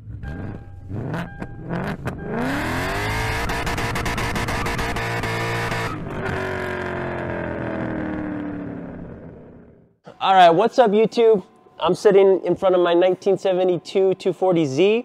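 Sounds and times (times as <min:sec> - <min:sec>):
car engine revving: 0:00.0 - 0:09.8.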